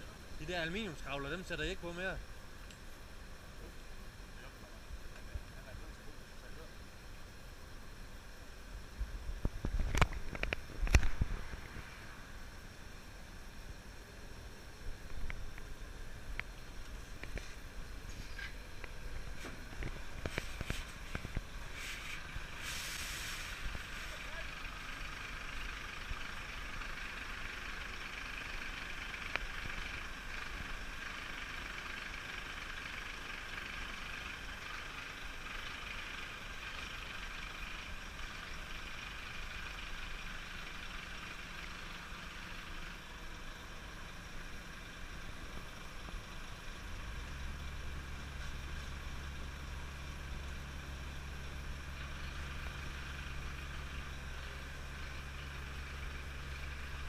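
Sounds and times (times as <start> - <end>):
deep engine hum: 0.0 - 57.0
diesel engine running: 0.0 - 57.0
mechanical hiss: 19.3 - 24.2.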